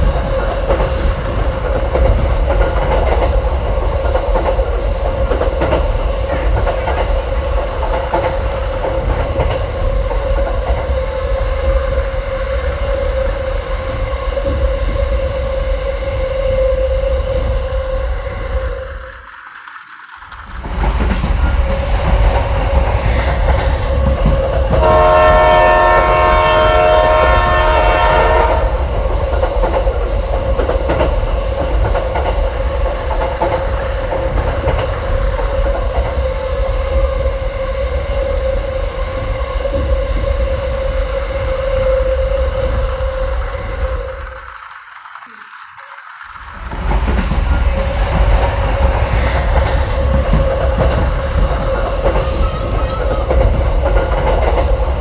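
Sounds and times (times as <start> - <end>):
wheels rattling on plastic track: 0.0 - 15.2, 17.5 - 37.4, 40.4 - 55.0
toy train motor whine: 10.6 - 38.5, 39.2 - 53.9
toy train horn: 24.7 - 28.8.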